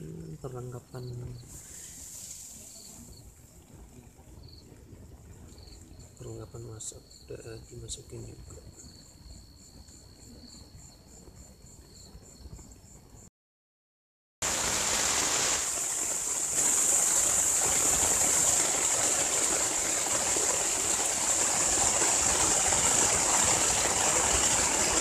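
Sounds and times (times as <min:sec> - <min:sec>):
heavy rain on a tent: 0:01.0 - 0:07.1, 0:14.4 - 0:25.0.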